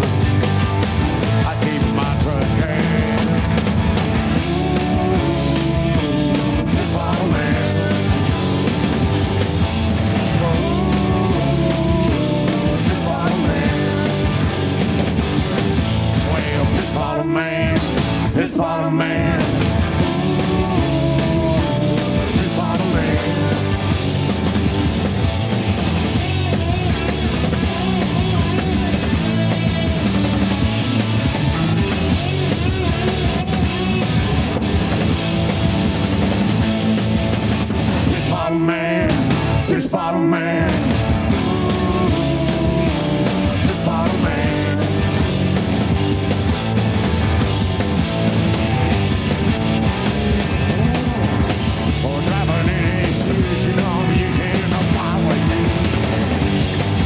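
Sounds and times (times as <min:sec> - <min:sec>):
punk rock band playing: 0:00.0 - 0:57.0
man singing: 0:01.4 - 0:03.4, 0:04.4 - 0:08.3, 0:10.3 - 0:14.5, 0:16.2 - 0:23.9, 0:38.1 - 0:45.2, 0:51.9 - 0:56.2.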